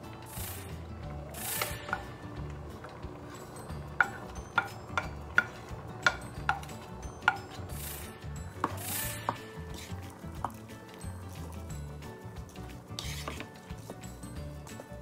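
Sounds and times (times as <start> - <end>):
rustling scrapes of vegetables: 0.2 - 1.9, 7.5 - 10.7, 12.6 - 14.1.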